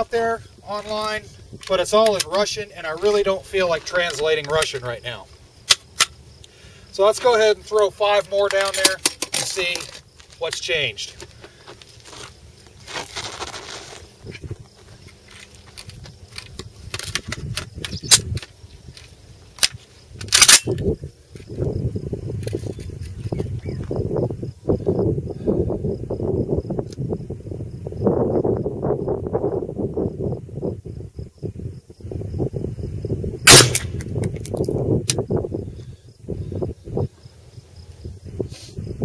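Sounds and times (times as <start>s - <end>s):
magazine clicking into rifle: 15.4s - 20.9s
rifle charging handle clack: 19.6s - 20.8s
loud rifle shot: 33.5s - 34.1s.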